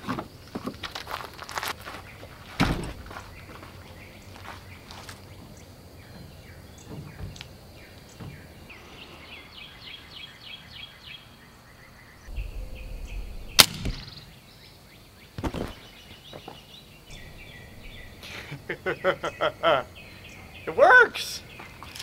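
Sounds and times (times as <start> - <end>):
birds chirping: 1.8 - 22.0
air rifle shot: 13.4 - 14.3.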